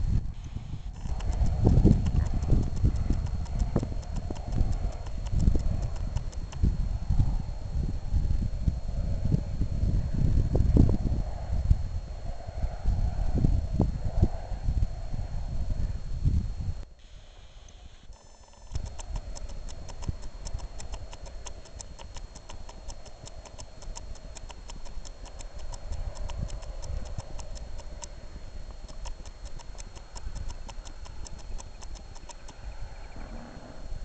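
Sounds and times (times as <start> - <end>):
wind buffeting microphone: 0.0 - 16.8, 18.7 - 34.0
fast even ticking: 0.4 - 7.4, 18.1 - 32.7.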